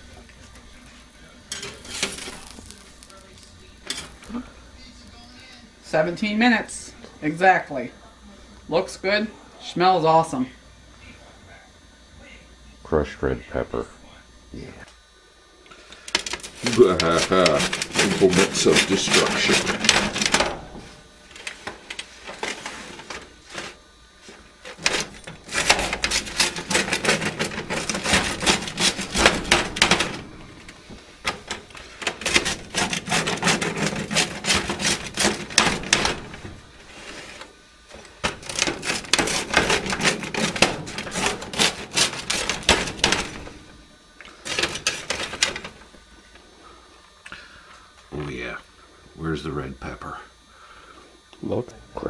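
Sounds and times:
pizza cutter crunching crust: 0.0s - 4.6s, 15.7s - 45.9s.

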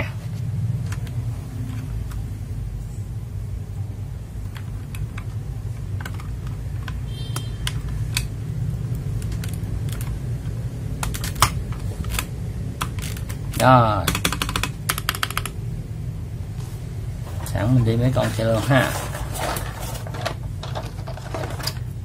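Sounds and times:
low steady hum: 0.0s - 22.0s
mechanical keyboard clacks: 4.4s - 15.6s.

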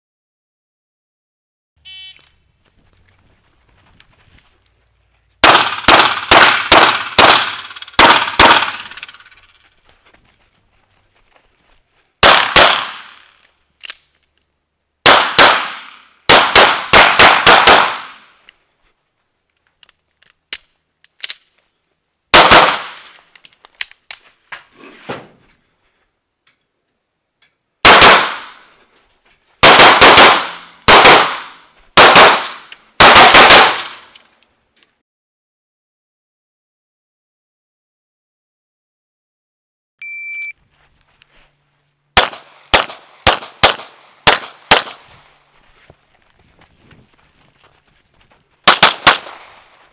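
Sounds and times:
rapid pistol fire: 5.4s - 9.4s, 12.2s - 13.2s, 15.0s - 18.2s, 22.3s - 23.0s, 27.8s - 28.6s, 29.6s - 34.0s, 42.2s - 45.0s, 48.6s - 49.6s.

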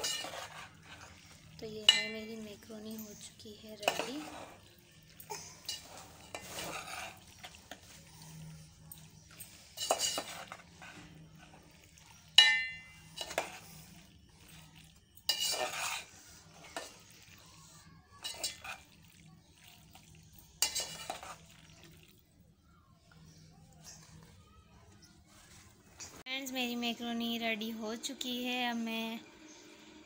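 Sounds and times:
metal spoon scraping a pot: 0.0s - 17.4s, 18.2s - 18.9s, 20.5s - 21.8s.

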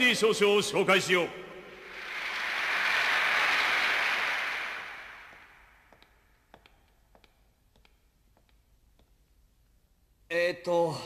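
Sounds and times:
crowd applause: 1.8s - 5.6s.

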